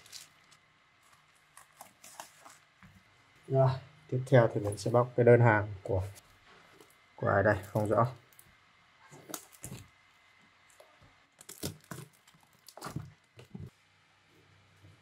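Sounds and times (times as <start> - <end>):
plastic wrap crinkling: 0.0 - 2.8, 11.4 - 13.6.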